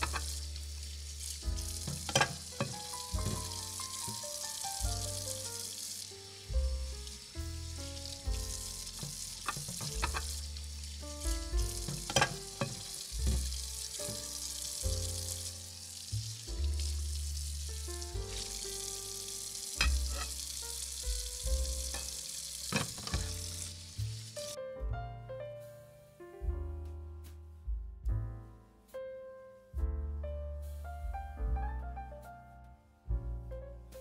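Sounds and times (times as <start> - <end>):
burner hissing: 0.0 - 24.6.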